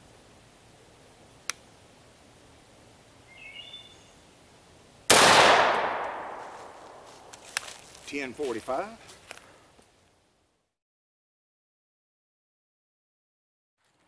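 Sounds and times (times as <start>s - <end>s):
shotgun blast: 5.1s - 7.0s.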